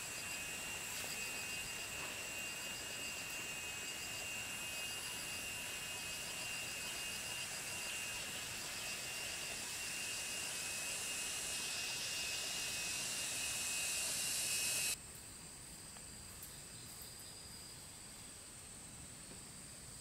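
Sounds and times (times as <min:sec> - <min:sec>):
constant whining tones: 0:00.0 - 0:15.0
insects buzzing and shrilling: 0:00.0 - 0:20.0.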